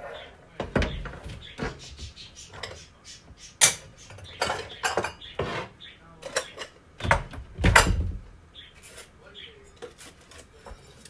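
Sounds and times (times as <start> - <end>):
dishes and utensils clattering: 0.0 - 2.9, 3.6 - 8.2, 9.8 - 11.0.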